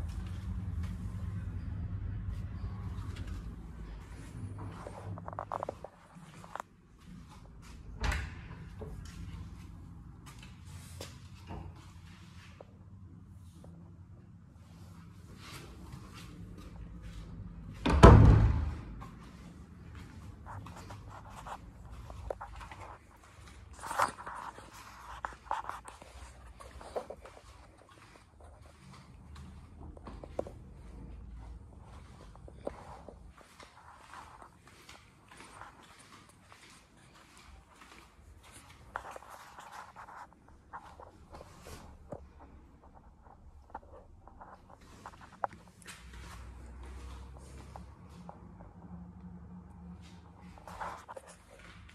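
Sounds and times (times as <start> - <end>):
footsteps on hard floor: 17.8 - 43.0.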